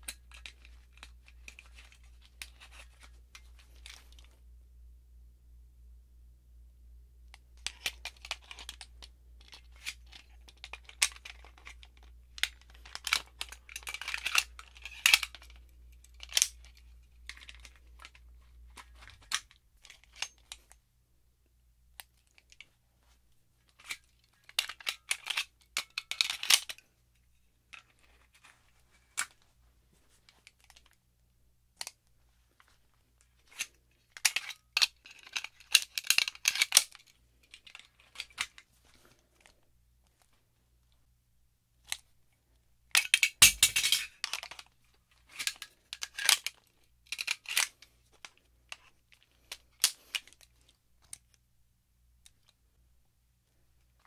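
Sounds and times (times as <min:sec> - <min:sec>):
pistol metallic clicks and rattles: 0:07.6 - 0:20.8, 0:23.7 - 0:26.8, 0:33.4 - 0:38.6, 0:42.9 - 0:51.4.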